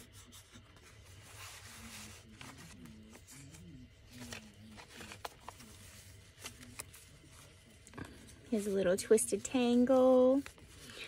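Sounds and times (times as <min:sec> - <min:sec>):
paper pages rustling: 0:00.0 - 0:11.0.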